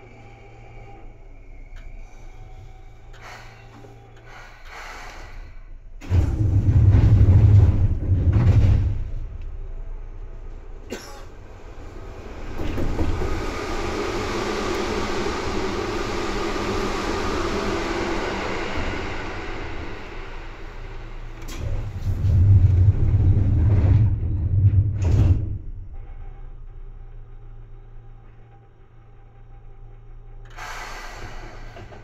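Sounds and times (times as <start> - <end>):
low hum: 0.0 - 4.4, 5.4 - 32.0
train running noise: 0.0 - 32.0
heavy low rumble: 5.6 - 30.5.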